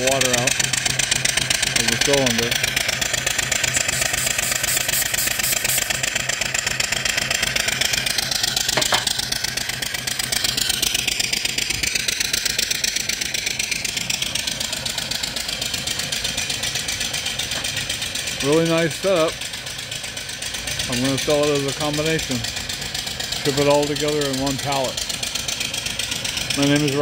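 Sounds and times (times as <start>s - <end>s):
steam engine pulsing hiss: 3.5s - 6.2s.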